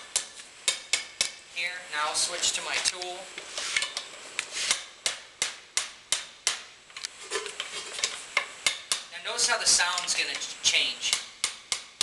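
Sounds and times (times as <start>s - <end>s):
hammer tapping metal: 0.1s - 1.4s, 8.4s - 9.1s, 11.1s - 12.0s.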